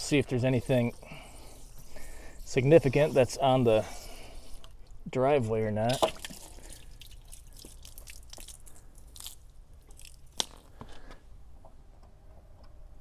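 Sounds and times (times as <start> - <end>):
garden hose clicks and scrapes: 0.0 - 5.0, 5.8 - 11.2.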